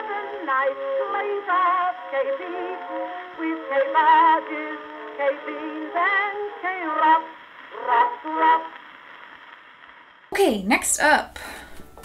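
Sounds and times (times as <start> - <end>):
old song with vibrato voice: 0.0 - 9.6.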